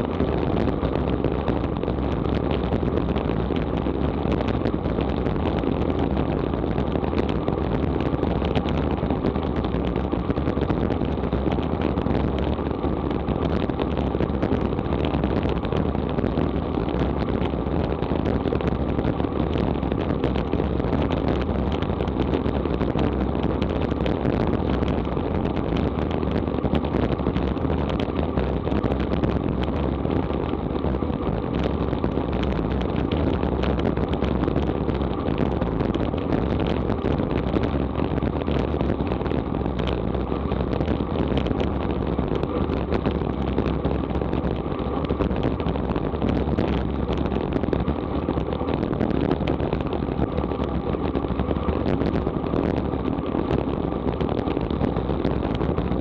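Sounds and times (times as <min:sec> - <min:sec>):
road tyre noise: 0:00.0 - 0:56.0
wind rush on microphone: 0:00.0 - 0:56.0.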